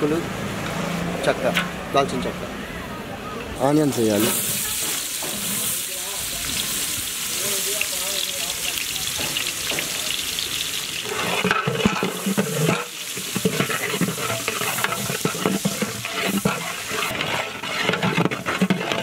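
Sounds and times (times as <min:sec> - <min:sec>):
onions sizzling in oil: 0:03.8 - 0:19.0
metal spatula scraping a pot: 0:11.0 - 0:19.0.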